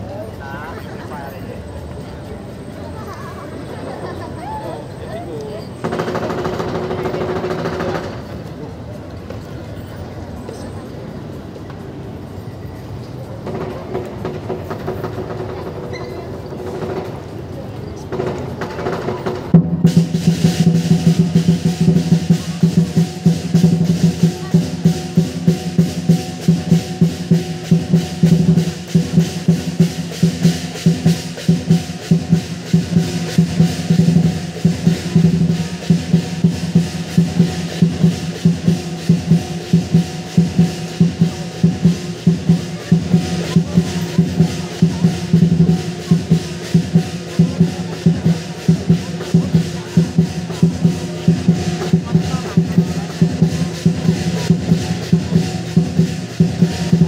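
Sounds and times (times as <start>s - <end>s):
large drum beaten fast: 5.8s - 8.3s, 18.1s - 57.0s
crashing cymbals: 19.8s - 57.0s.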